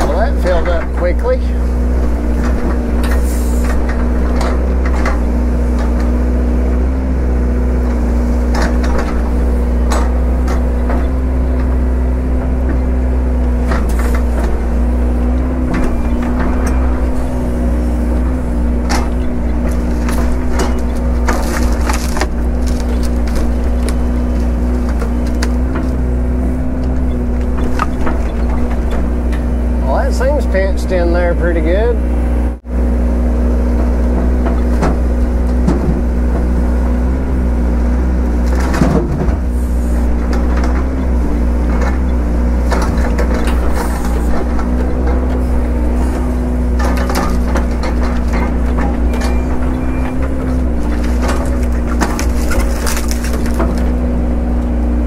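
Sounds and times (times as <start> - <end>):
diesel excavator engine: 0.0 - 55.0
wood cracking and snapping: 13.5 - 29.4, 40.2 - 54.7.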